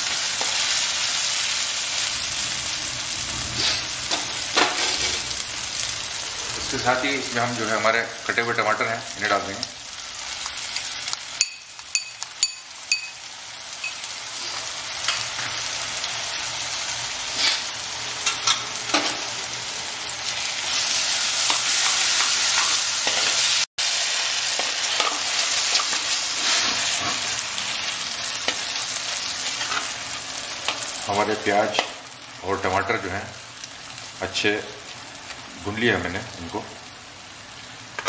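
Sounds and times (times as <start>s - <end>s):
tomatoes and onions sizzling: 0.0s - 38.0s
ringing metal clinks: 11.4s - 13.2s
metal spoon scraping pan: 21.4s - 23.6s, 24.5s - 27.4s, 29.4s - 30.0s.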